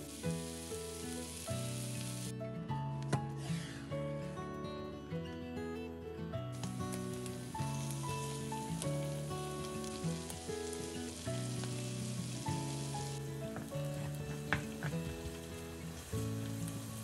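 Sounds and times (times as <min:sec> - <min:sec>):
food sizzling in frying pan: 0:00.0 - 0:02.3, 0:06.6 - 0:17.0
slow background music: 0:00.0 - 0:17.0.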